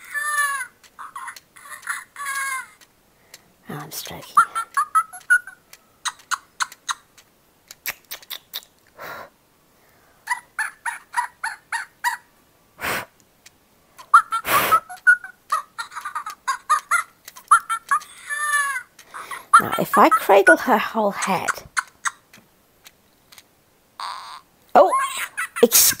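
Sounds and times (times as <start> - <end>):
toy monkey electronic calls: 0.0 - 2.9, 4.3 - 7.3, 14.0 - 20.6, 21.7 - 22.4, 24.0 - 25.6.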